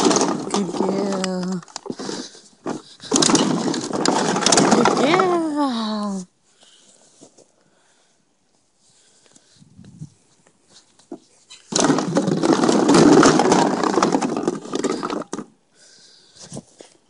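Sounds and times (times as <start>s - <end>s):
plastic bottles clattering and crinkling: 0.0s - 5.5s, 11.1s - 15.6s.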